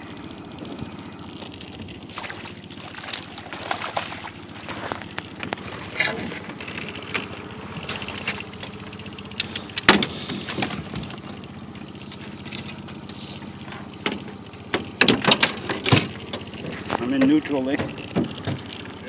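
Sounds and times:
outboard motor running: 0.0s - 19.0s
net knocking against metal boat: 17.0s - 18.7s.

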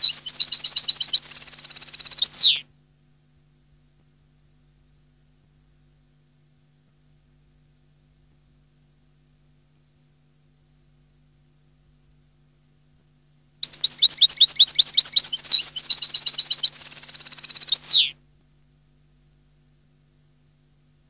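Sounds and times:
goldfinch singing: 0.0s - 2.6s, 13.6s - 18.1s.

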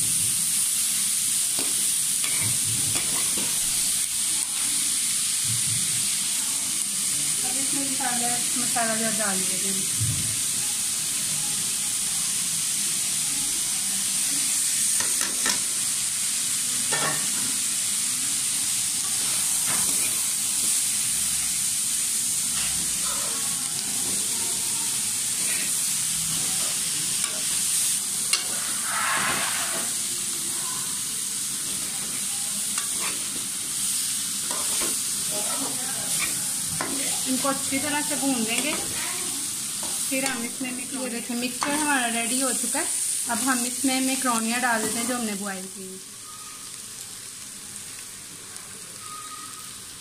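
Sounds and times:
vegetables sizzling in a wok: 0.0s - 50.0s
metal spatula scraping a pan: 2.2s - 3.6s, 19.0s - 20.8s, 25.3s - 27.6s, 28.3s - 30.1s, 31.7s - 33.6s, 34.4s - 39.0s.

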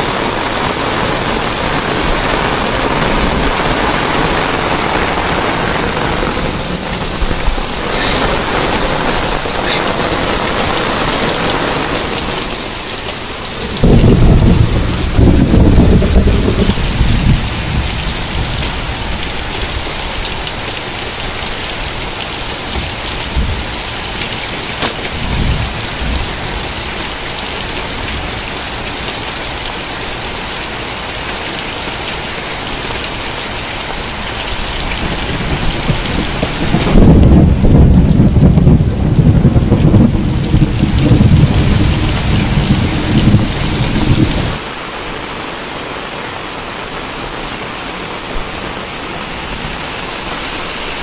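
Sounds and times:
low thunder rumble: 0.0s - 12.8s, 13.4s - 20.2s, 22.5s - 27.2s, 34.5s - 44.6s
heavy rain pouring: 0.0s - 51.0s.

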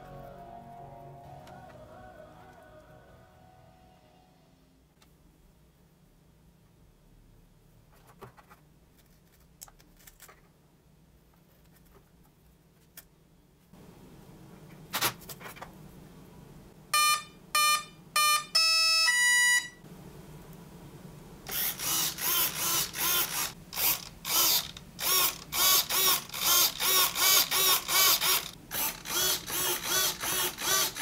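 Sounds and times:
servos whirring: 21.5s - 31.0s.

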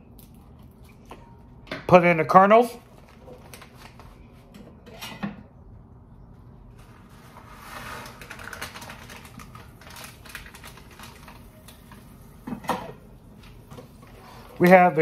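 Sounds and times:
popcorn kernels rattling in metal kettle: 7.7s - 12.0s.

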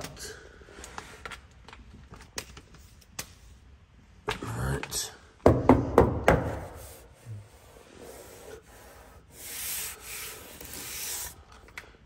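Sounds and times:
soft rubbing brushing noise: 6.6s - 11.4s.

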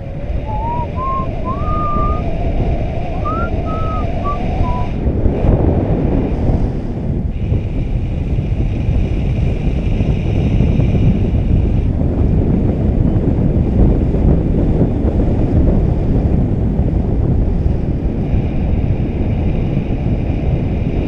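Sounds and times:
wind rushing over microphone: 0.0s - 21.0s
sliding whistled notes: 0.3s - 5.0s.

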